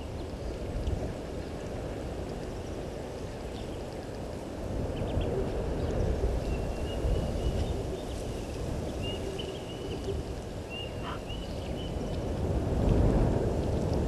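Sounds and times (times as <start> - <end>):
wind rumbling on microphone: 0.0 - 14.0
thin high animal call: 11.0 - 11.4.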